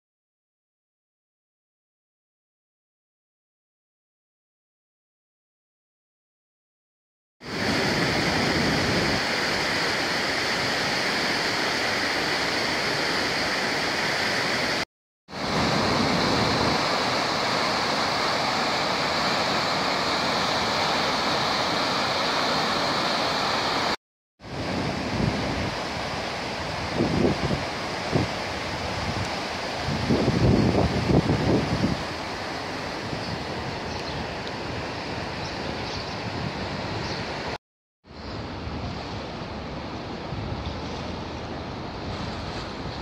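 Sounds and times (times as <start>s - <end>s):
fast river rushing: 7.4s - 37.6s.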